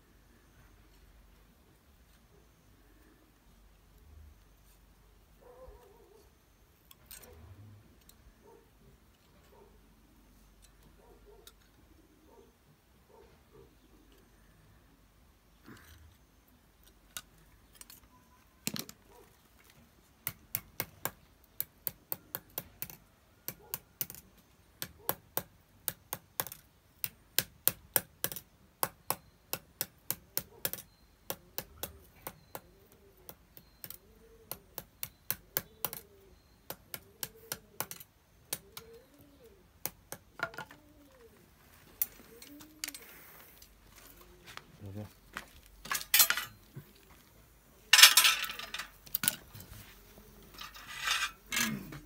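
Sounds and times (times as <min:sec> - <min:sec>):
metal tool tapping wire: 0:20.2 - 0:24.2, 0:24.8 - 0:36.1, 0:45.8 - 0:46.6.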